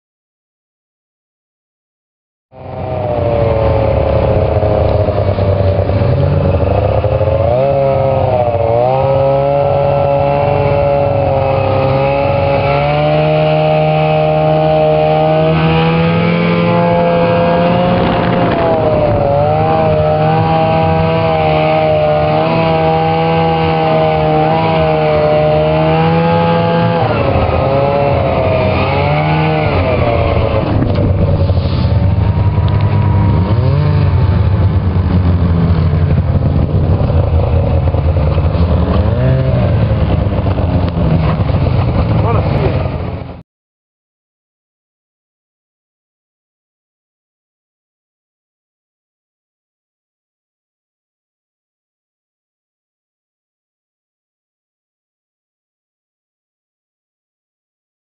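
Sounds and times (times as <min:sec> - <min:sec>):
snowmobile engine revving: 0:02.5 - 0:43.4.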